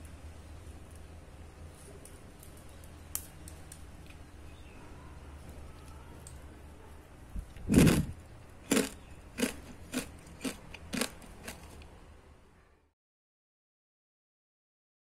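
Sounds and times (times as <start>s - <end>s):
crispy chips crunching: 7.5s - 11.8s.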